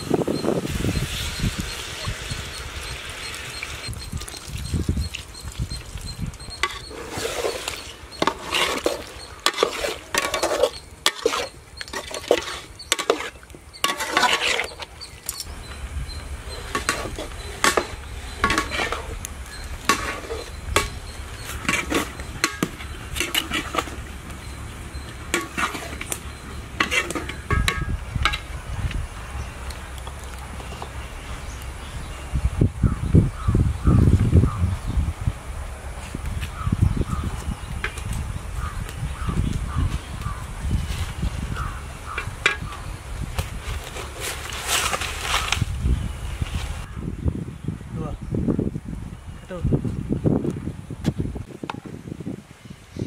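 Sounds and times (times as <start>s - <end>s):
metal ladle scraping a pot: 6.5s - 15.4s, 16.5s - 28.5s.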